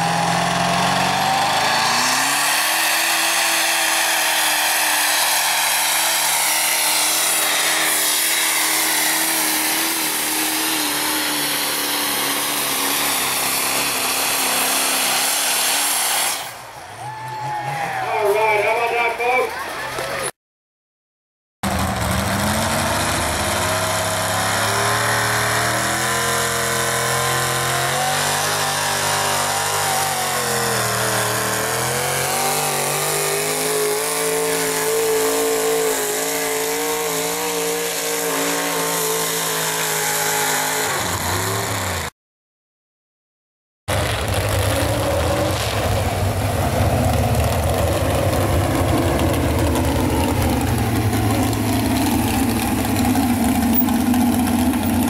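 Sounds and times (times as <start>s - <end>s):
truck engine running under load: 0.0s - 16.8s, 21.6s - 42.1s, 43.9s - 55.0s
rough loud pickup engine rumble: 0.0s - 20.3s, 21.6s - 42.1s, 43.9s - 55.0s.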